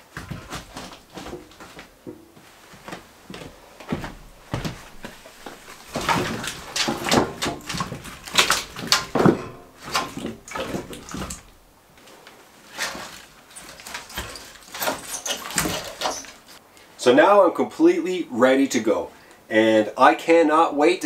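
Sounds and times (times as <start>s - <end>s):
wooden logs knocking and clattering: 0.0s - 2.2s, 3.9s - 11.7s, 12.7s - 16.6s.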